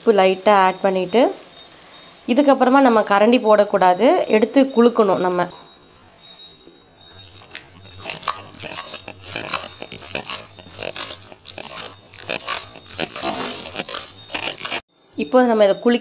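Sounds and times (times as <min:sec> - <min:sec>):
clay pot shaken scraping and knocking: 0:07.3 - 0:14.8.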